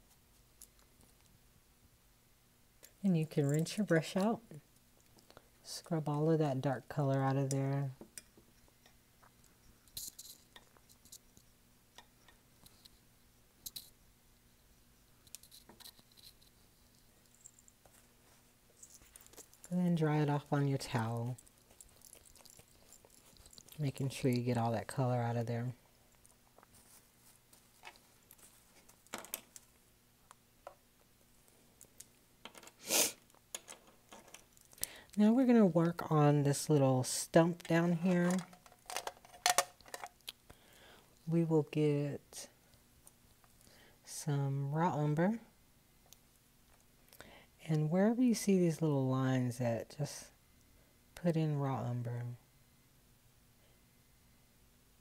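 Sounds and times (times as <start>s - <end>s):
small clicks and rustles: 2.8s - 5.6s, 7.2s - 14.0s, 15.1s - 19.8s, 20.9s - 24.6s, 26.0s - 35.2s, 37.6s - 40.6s
short hiss: 32.8s - 33.2s.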